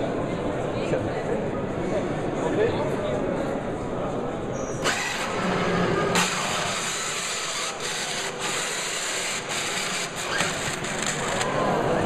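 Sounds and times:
small motors whirring: 4.8 - 11.5.

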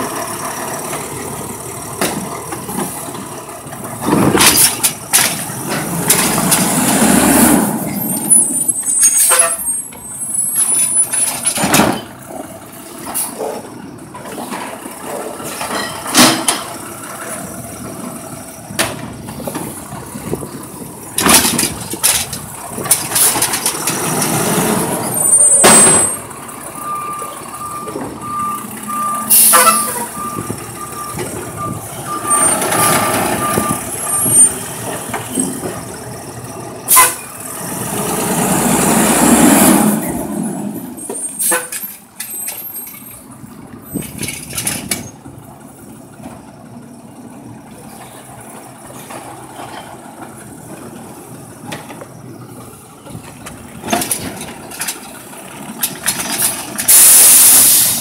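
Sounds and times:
truck engine revving: 0.0 - 41.5
warning beep: 26.8 - 34.5
air brake hiss: 56.9 - 58.0.

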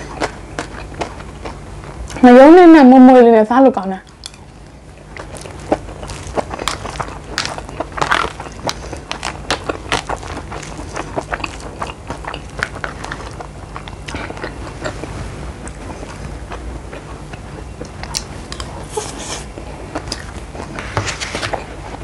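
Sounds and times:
person chewing and crunching food: 0.0 - 2.3, 4.0 - 22.0
steady low hum: 0.0 - 22.0.

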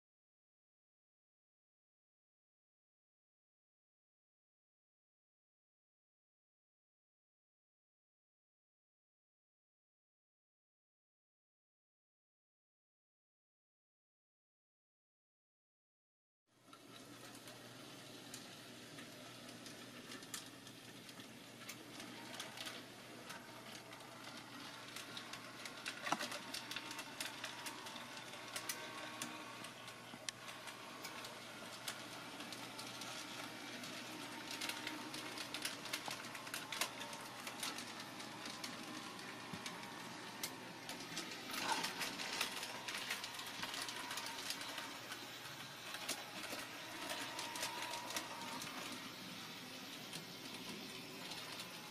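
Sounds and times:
wheels clicking on track: 16.7 - 51.9
small electric motors whirring: 24.7 - 51.9.

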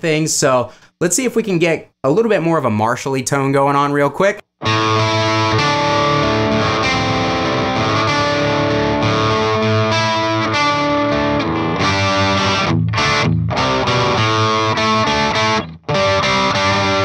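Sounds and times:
overdriven electric guitar chords: 4.6 - 17.0.

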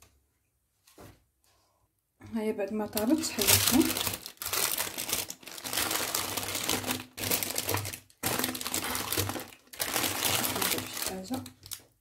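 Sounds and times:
baking parchment crinkling: 2.7 - 12.0.

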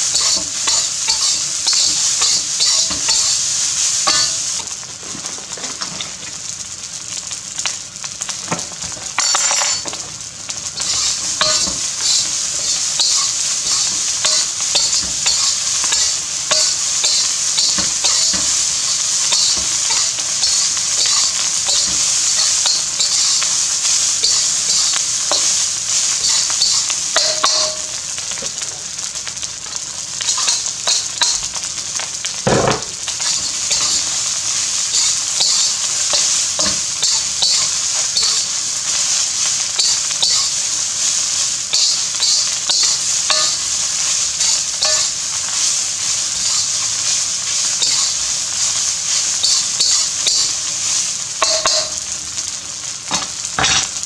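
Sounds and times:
fried rice sizzling in a wok: 0.0 - 54.0
metal spatula scraping a wok: 0.1 - 3.4, 9.1 - 10.0, 10.7 - 23.4, 26.2 - 28.0, 41.7 - 43.7, 44.4 - 45.6.

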